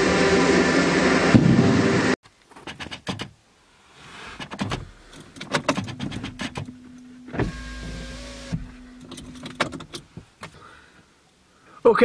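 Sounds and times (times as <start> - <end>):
handling clicks and knocks: 4.4 - 7.0, 8.6 - 10.6
low steady hum: 4.6 - 11.8
electric window motor: 6.0 - 9.6.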